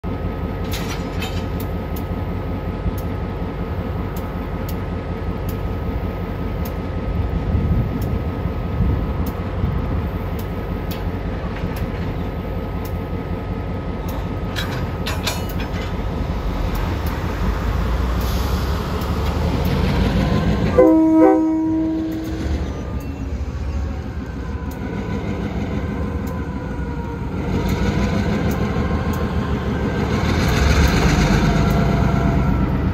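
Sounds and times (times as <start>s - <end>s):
locomotive engine running: 0.0s - 32.9s
locomotive horn blast: 20.6s - 22.4s.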